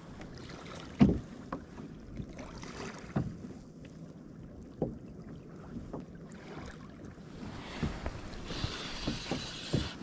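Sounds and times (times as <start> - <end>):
water lapping against kayak hull: 0.0 - 10.0
wind buffeting microphone: 7.3 - 10.0.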